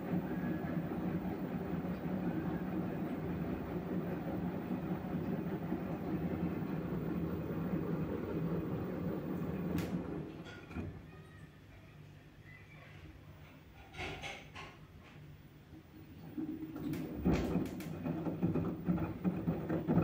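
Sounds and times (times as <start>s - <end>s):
washing machine drum rumbling: 0.0s - 11.1s, 15.9s - 20.0s
washing machine click: 9.2s - 10.9s.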